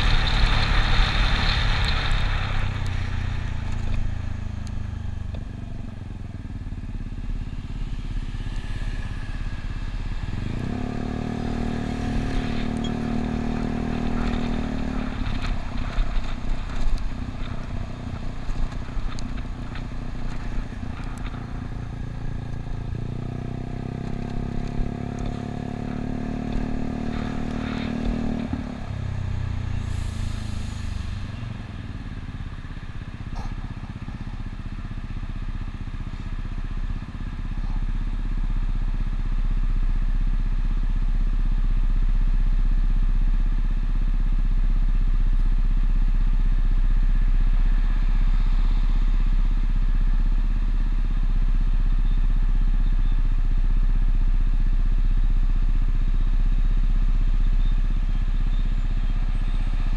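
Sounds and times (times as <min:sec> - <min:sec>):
scooter engine: 0:00.0 - 0:29.6
deep low rumble: 0:00.0 - 0:36.1.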